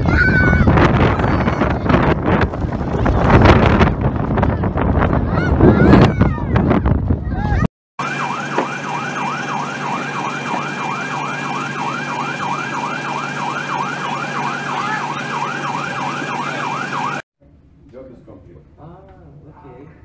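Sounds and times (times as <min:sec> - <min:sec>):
loud wind: 0:00.0 - 0:07.7
siren yelping: 0:08.0 - 0:17.2
crowd noise: 0:14.1 - 0:17.2.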